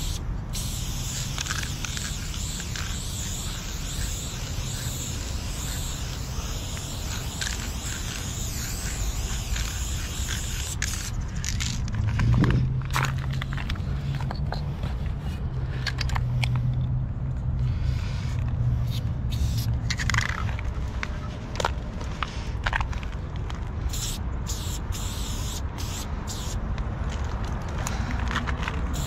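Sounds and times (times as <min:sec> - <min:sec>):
spray paint can hissing: 0:00.0 - 0:11.9, 0:18.8 - 0:20.4, 0:23.9 - 0:26.6, 0:28.4 - 0:29.0.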